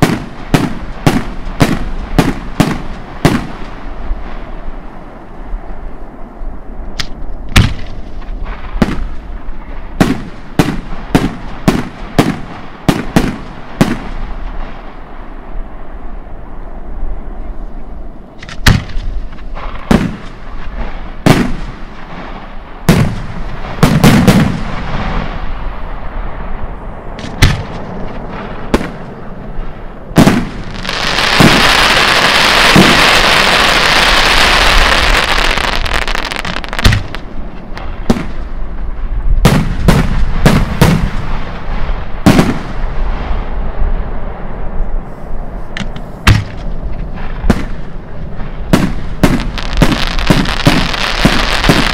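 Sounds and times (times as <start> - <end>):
firework shells booming: 7.5 - 9.2, 18.4 - 25.4, 27.2 - 29.1, 30.2 - 38.6, 39.4 - 43.4, 45.8 - 51.9
firework crackling hiss: 30.2 - 37.8, 48.6 - 51.9.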